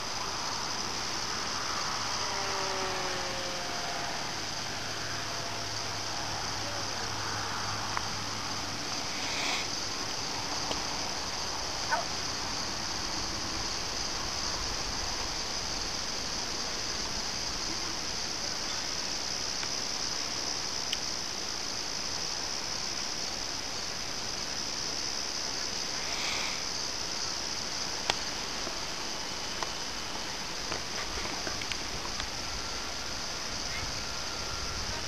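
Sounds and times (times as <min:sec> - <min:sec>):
insects chirring: 0:00.0 - 0:35.0.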